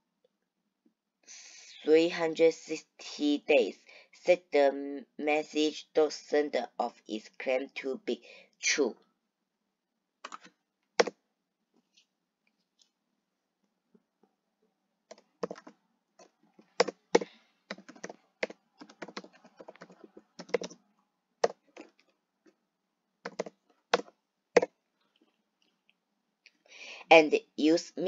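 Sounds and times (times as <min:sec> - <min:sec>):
typing on computer keyboard: 0:10.2 - 0:11.1, 0:15.1 - 0:20.8, 0:23.3 - 0:24.7.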